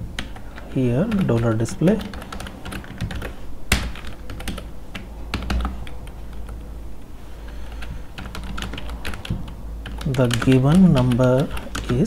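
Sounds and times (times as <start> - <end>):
computer keyboard typing: 0.0 - 6.6, 7.6 - 12.0.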